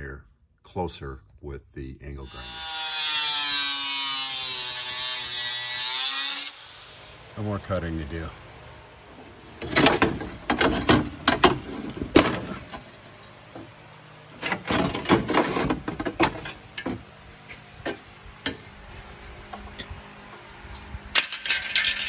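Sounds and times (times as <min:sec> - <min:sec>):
metal clanking and scraping: 0:09.6 - 0:13.7, 0:14.4 - 0:20.0, 0:21.1 - 0:22.0.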